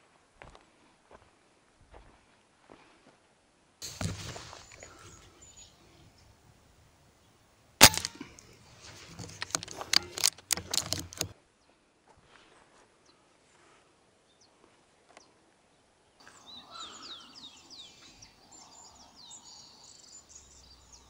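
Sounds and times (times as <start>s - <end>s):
rustling noise: 3.8s - 5.9s, 7.9s - 11.3s
rifle shot: 7.8s - 8.6s
quick clicks and knocks: 7.8s - 11.3s.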